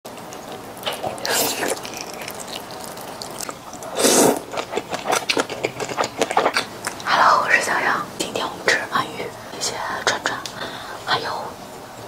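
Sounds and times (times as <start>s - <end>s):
wet clicking chewing: 0.1s - 7.2s
wet bite into food: 0.2s - 7.0s
slurping noodles: 0.3s - 7.1s.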